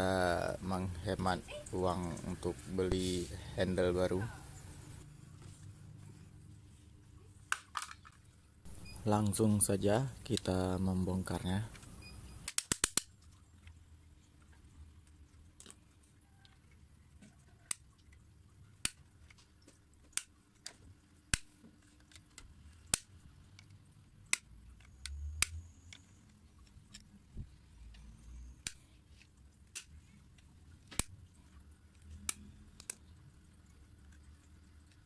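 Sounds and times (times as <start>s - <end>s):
rubbing and handling noise: 0.0s - 16.2s
plastic clicks and snaps: 11.7s - 13.4s, 18.8s - 27.2s, 28.6s - 28.8s, 29.7s - 30.0s, 30.8s - 31.1s, 32.0s - 33.2s.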